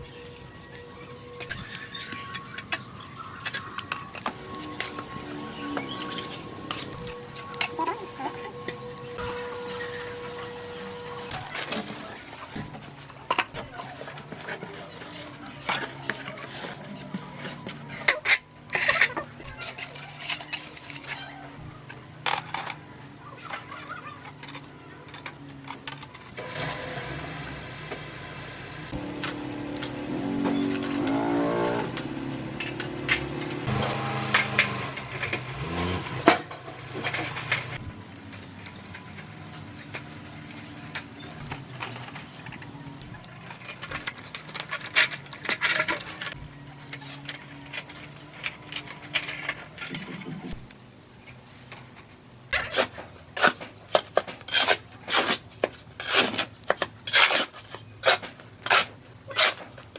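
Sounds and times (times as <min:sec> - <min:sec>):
motor engine passing: 0:26.4 - 0:43.0.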